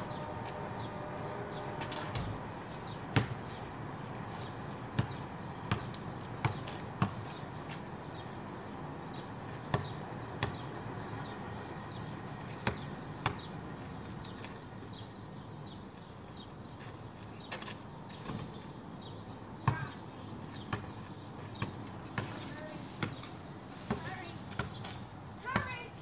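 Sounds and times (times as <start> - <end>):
outdoor background noise: 0.0 - 26.0
basketball bouncing on pavement: 0.1 - 26.0.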